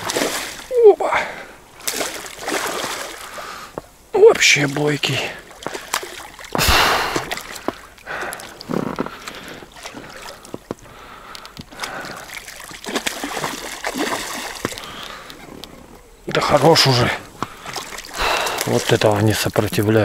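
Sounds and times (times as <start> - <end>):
fish thrashing and splashing water: 0.0 - 0.8, 1.8 - 3.8, 4.4 - 15.6, 16.4 - 20.0.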